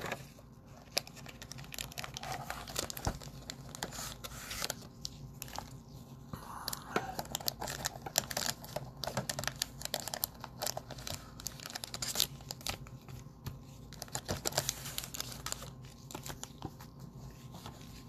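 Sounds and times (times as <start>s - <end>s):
card packs crinkling: 0.0s - 5.9s, 6.6s - 18.0s
cardboard rustling: 7.3s - 18.0s.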